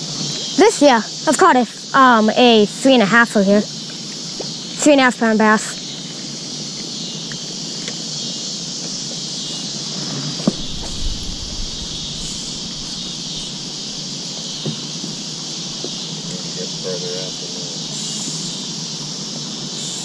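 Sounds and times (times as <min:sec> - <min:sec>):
insects chirring: 0:00.0 - 0:20.0
short low rumble: 0:10.5 - 0:14.0.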